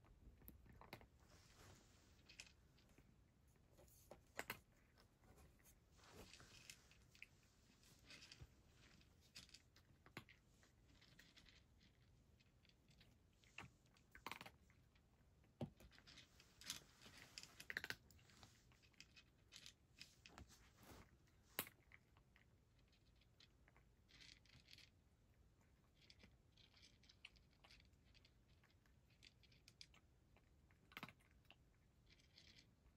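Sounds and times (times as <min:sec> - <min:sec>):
cat crunching dry food: 0:06.2 - 0:15.2, 0:15.9 - 0:20.3, 0:21.6 - 0:32.8.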